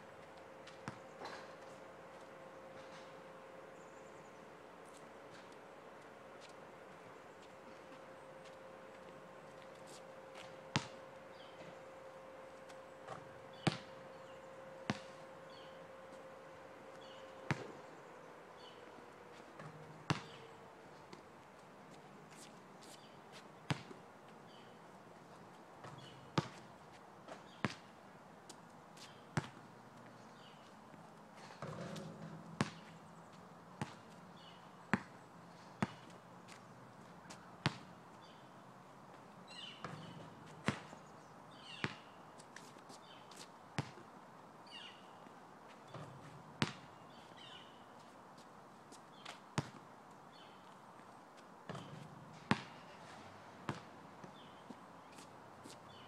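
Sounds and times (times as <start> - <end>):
basketball bouncing on asphalt: 0.6 - 2.9, 10.3 - 11.8, 12.6 - 15.7, 17.0 - 17.9, 19.6 - 20.5, 23.6 - 24.6, 25.8 - 26.7, 27.3 - 27.9, 29.0 - 36.6, 37.3 - 38.4, 39.7 - 41.0, 41.6 - 42.7, 43.3 - 44.1, 45.9 - 47.2, 49.2 - 49.9, 51.7 - 52.9, 53.7 - 53.9.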